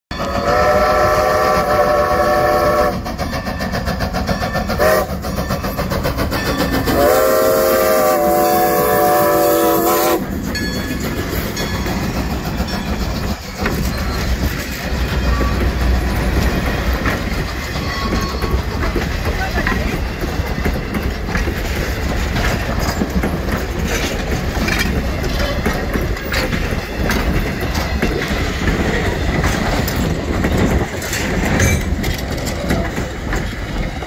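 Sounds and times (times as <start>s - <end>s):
steam locomotive chime whistle: 0.1s - 12.0s
coaches clacking over rail joints: 0.1s - 34.0s
steam locomotive working steam: 0.1s - 34.0s.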